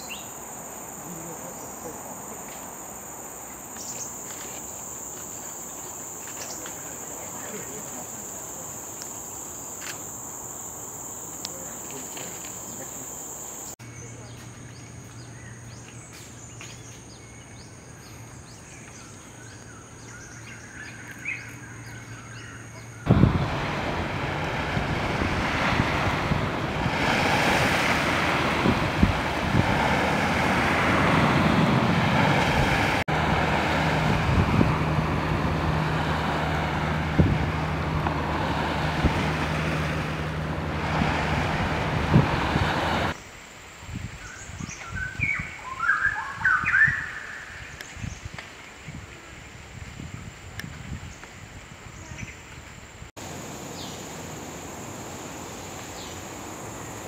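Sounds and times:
surf washing onto shore: 0:23.1 - 0:43.1.

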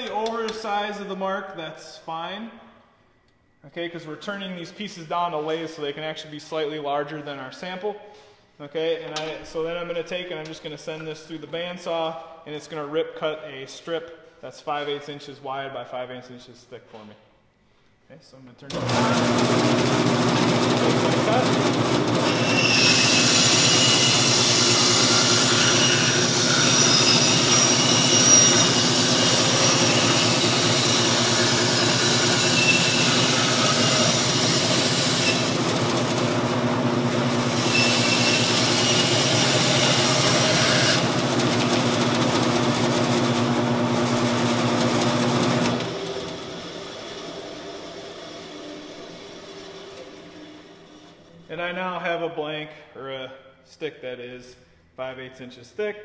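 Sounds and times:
bandsaw motor hum: 0:18.7 - 0:51.2
saw winding down: 0:18.7 - 0:51.3.

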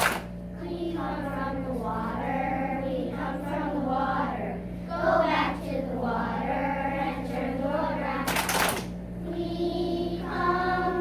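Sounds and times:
steady low hum: 0:00.0 - 0:11.0
children singing in unison: 0:09.3 - 0:11.0.

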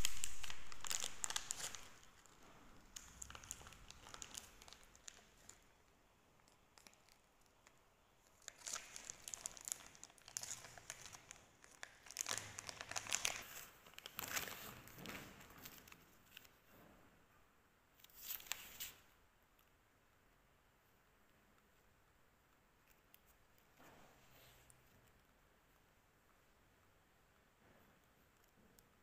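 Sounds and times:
plastic wrapping crinkling: 0:00.0 - 0:05.7, 0:06.4 - 0:07.7, 0:08.3 - 0:16.6.

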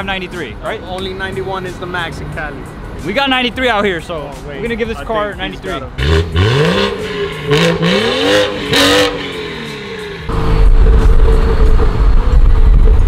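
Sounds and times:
car driving at highway speed: 0:05.9 - 0:13.0
car engine revving: 0:05.9 - 0:13.0.

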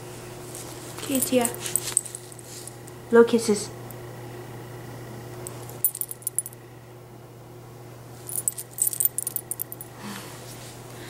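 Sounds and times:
metal dog tags jingling: 0:01.0 - 0:02.2, 0:05.8 - 0:06.6, 0:08.3 - 0:09.9.

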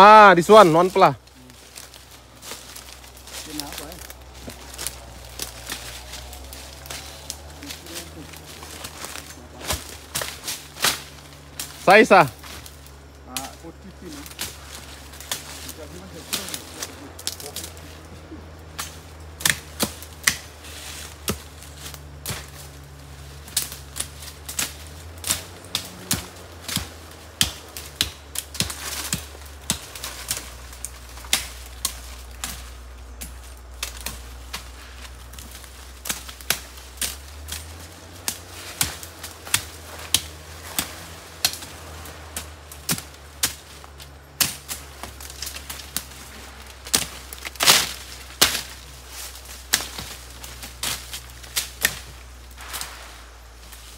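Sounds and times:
low steady hum: 0:00.0 - 0:53.9
sharp knocks and snaps: 0:01.7 - 0:17.8, 0:18.6 - 0:52.3.

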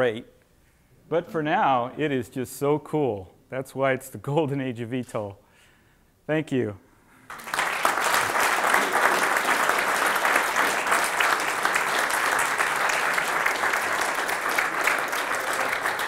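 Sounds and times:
audience applauding: 0:07.3 - 0:16.0.

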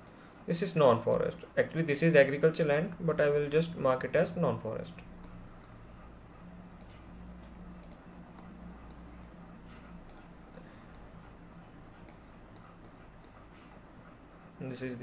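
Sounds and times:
faint low hum: 0:00.0 - 0:15.0
computer mouse clicking: 0:05.0 - 0:05.8, 0:06.8 - 0:11.2, 0:12.0 - 0:13.8, 0:14.8 - 0:15.0.

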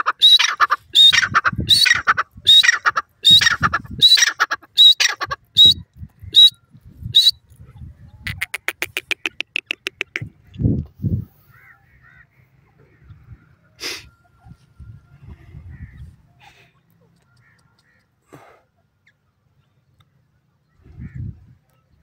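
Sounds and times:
bird harsh repeated calls: 0:00.0 - 0:06.6, 0:08.2 - 0:10.6, 0:11.4 - 0:14.0.

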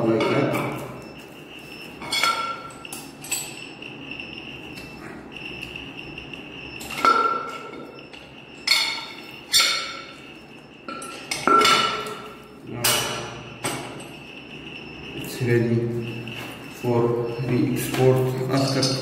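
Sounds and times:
metal cover clinking and ringing: 0:08.6 - 0:10.1, 0:10.9 - 0:14.1, 0:18.4 - 0:19.0.

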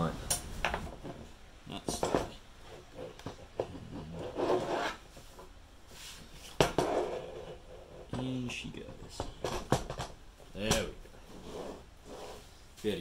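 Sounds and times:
wood scraping and rubbing: 0:01.9 - 0:09.8, 0:11.2 - 0:12.5.

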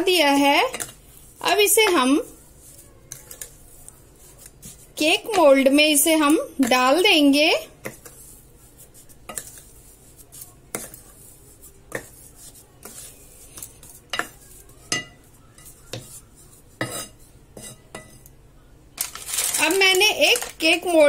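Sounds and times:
wooden spoon scraping glass bowl: 0:07.8 - 0:18.2.

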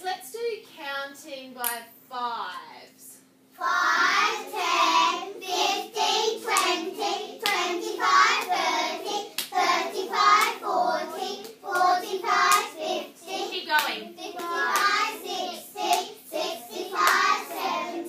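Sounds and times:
children chanting numbers: 0:03.6 - 0:18.0.

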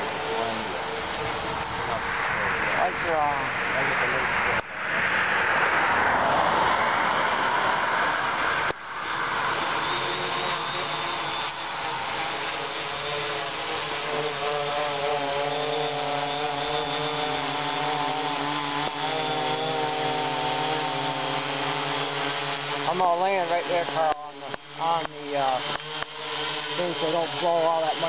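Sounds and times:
rushing noise: 0:00.0 - 0:13.8
quadcopter motors buzzing: 0:00.0 - 0:28.0.

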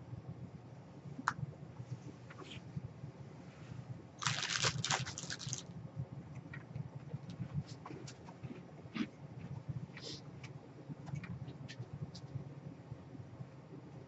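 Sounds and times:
chair rustling and crackling: 0:04.2 - 0:05.7.

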